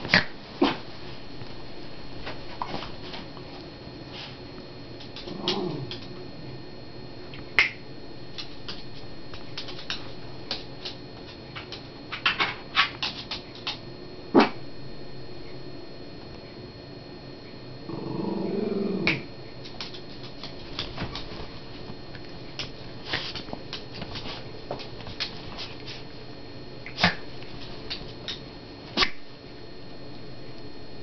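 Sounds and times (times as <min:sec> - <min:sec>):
animals play-fighting clicks and scuffs: 0:08.3 - 0:13.8, 0:19.6 - 0:26.1.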